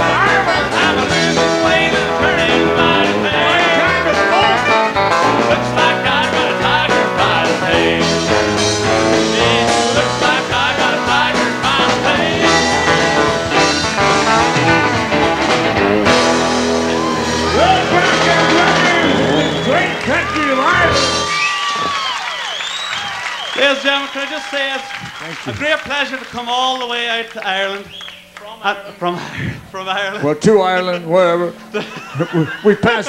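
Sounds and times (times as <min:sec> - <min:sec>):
person singing: 0:00.0 - 0:14.8
acoustic and electric guitars: 0:00.0 - 0:25.7, 0:27.8 - 0:33.0
drums: 0:00.0 - 0:26.7.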